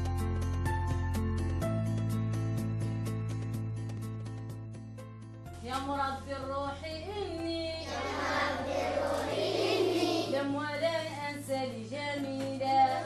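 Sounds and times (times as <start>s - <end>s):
background music: 0.0s - 13.0s
children singing: 7.8s - 10.6s.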